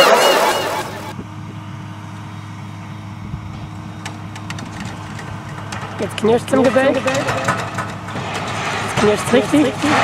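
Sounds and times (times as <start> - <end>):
diesel engine humming: 0.0 - 10.0
concrete cracking and creaking: 4.0 - 10.0.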